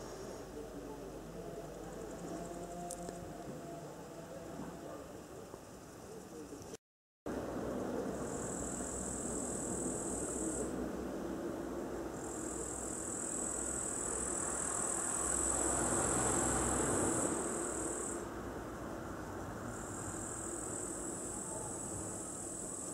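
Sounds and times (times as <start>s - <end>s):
low rumble of traffic: 0.0s - 6.7s, 7.3s - 22.9s
insect buzzing: 19.7s - 22.9s.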